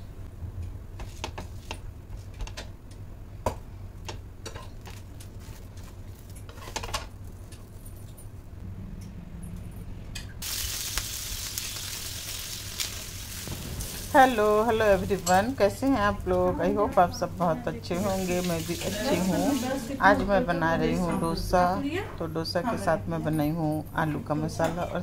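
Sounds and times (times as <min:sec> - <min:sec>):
spatula scraping on a pan: 0:05.6 - 0:07.1
batter sizzling on a hot pan: 0:10.4 - 0:15.4.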